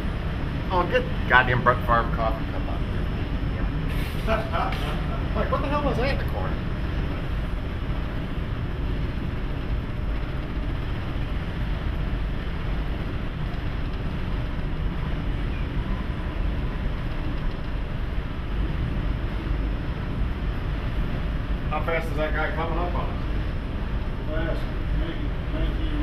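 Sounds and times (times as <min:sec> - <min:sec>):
ship rumbling in rough seas: 0:00.0 - 0:26.0.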